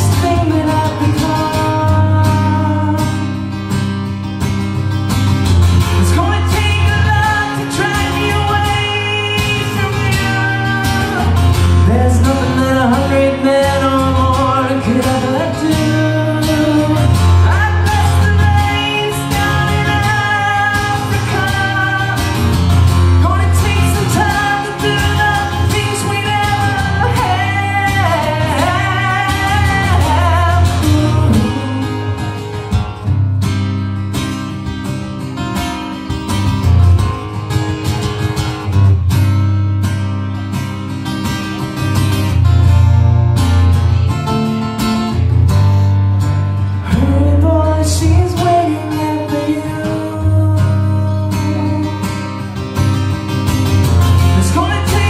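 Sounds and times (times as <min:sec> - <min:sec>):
man singing: 0:00.0 - 0:03.4, 0:05.9 - 0:32.6, 0:46.8 - 0:52.6, 0:54.1 - 0:55.0
acoustic guitar strumming: 0:00.0 - 0:55.0.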